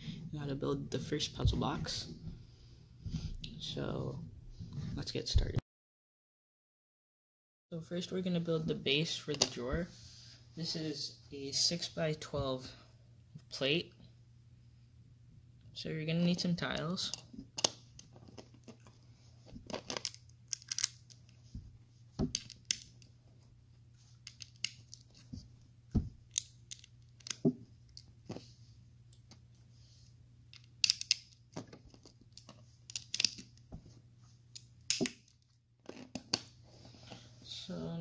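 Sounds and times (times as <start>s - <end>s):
plastic bricks clicking: 19.7s - 21.2s, 30.6s - 33.5s.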